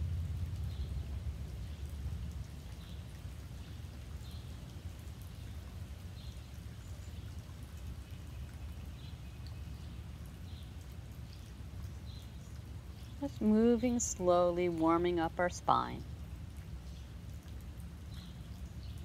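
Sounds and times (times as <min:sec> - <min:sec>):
steady low rumble: 0:00.0 - 0:02.6.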